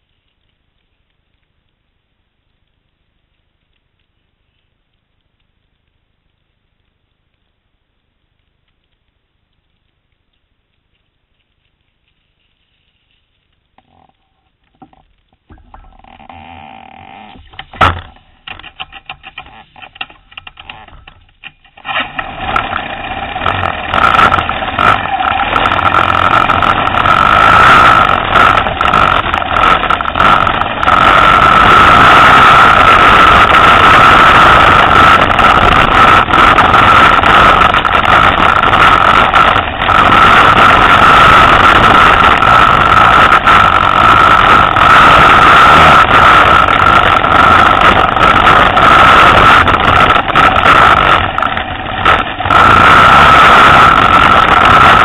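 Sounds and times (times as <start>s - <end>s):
motorcycle engine under load: 13.8s - 55.0s.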